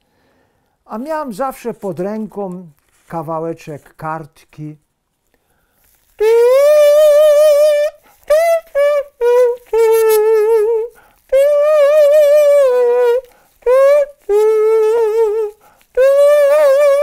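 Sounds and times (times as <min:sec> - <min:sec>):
comb and paper kazoo tune: 0:05.8 - 0:17.0.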